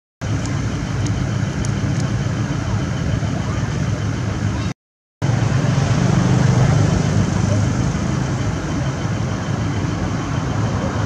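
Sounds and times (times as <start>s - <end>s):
low rumbling background noise: 0.2s - 11.0s.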